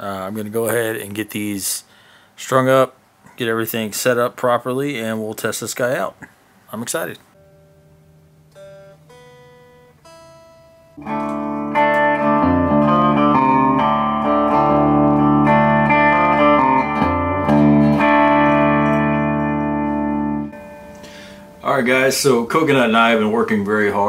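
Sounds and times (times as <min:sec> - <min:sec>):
electric guitar chords: 0:07.4 - 0:21.7.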